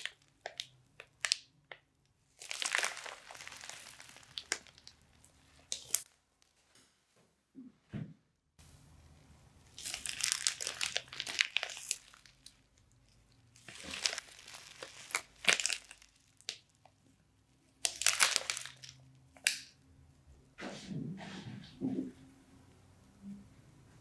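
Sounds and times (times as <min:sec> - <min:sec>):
slime crackling and popping: 0:00.0 - 0:06.1, 0:09.6 - 0:17.0, 0:17.7 - 0:19.8
plastic bag crinkling: 0:02.3 - 0:06.1, 0:09.7 - 0:16.7, 0:17.8 - 0:19.0.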